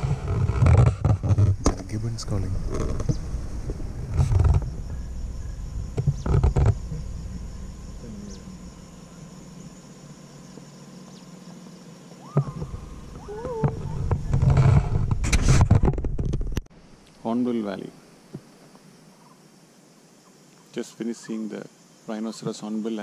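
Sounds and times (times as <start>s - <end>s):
wind buffeting microphone: 0.0s - 9.8s, 12.3s - 16.7s
low road noise: 0.0s - 17.3s.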